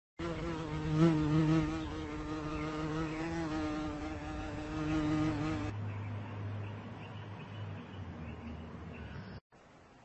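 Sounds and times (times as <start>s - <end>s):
flying insect buzzing: 0.2s - 5.7s.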